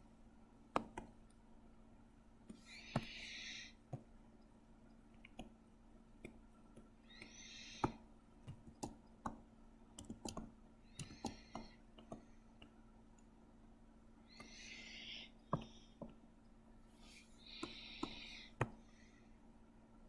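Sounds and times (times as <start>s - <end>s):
faint steady hum: 0.0s - 20.0s
computer mouse clicks: 6.2s - 13.3s.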